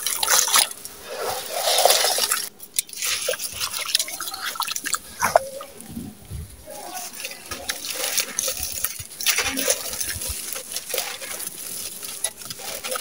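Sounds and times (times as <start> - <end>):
crumbs pattering down: 3.0 - 13.0.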